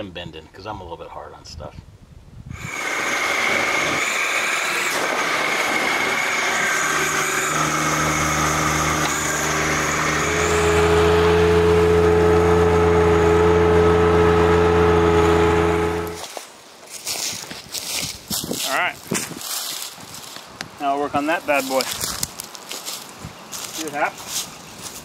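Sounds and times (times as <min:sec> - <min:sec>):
steady whine: 0:02.5 - 0:16.4
tractor engine under load: 0:02.6 - 0:16.2.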